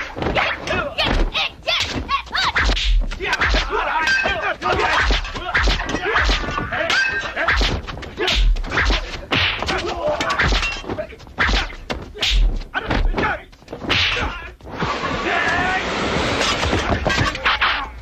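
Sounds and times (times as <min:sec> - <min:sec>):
punch and kick hits: 0:00.0 - 0:06.9, 0:07.5 - 0:10.8, 0:11.4 - 0:14.4
fighters shouting: 0:00.0 - 0:18.0.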